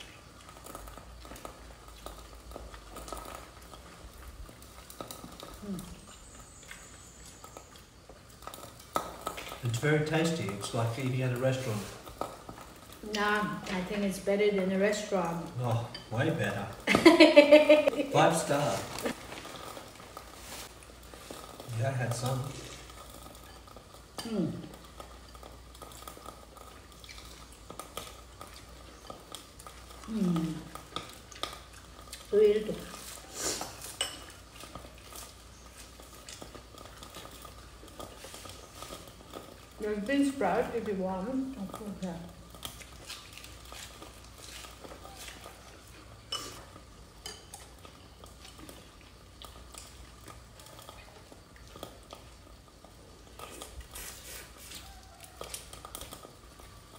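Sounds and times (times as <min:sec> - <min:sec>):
soft chewing and mouth noises: 0:00.0 - 0:13.8, 0:17.8 - 0:56.9
person humming: 0:30.1 - 0:30.6
utensils clicking on bowls: 0:46.3 - 0:47.7.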